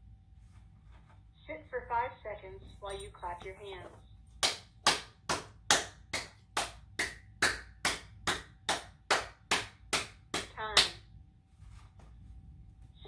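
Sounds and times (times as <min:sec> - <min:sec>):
person clapping hands: 0:04.4 - 0:11.0.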